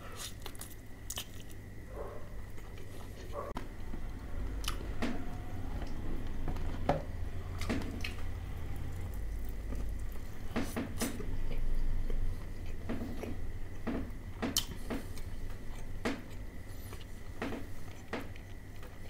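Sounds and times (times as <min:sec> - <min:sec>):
person chewing crispy chicken: 0:00.0 - 0:01.6
low steady hum: 0:00.0 - 0:19.0.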